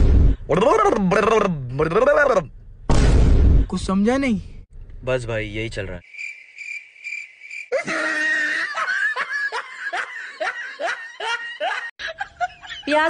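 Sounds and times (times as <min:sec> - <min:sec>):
snickering laughter: 0:07.7 - 0:13.0.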